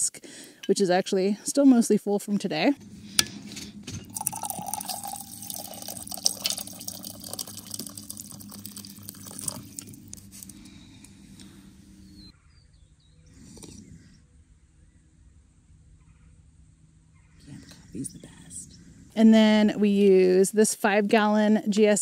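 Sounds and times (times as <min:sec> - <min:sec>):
person sipping: 0:02.8 - 0:12.2, 0:13.4 - 0:13.9
coffee pouring into mug: 0:03.7 - 0:10.7.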